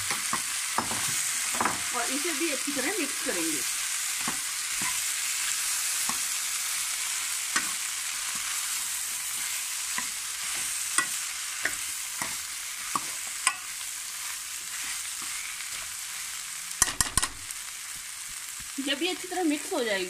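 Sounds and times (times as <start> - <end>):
vegetables sizzling in pan: 0.0 - 20.0
spoon clicking against pan: 10.9 - 13.7, 16.8 - 17.4.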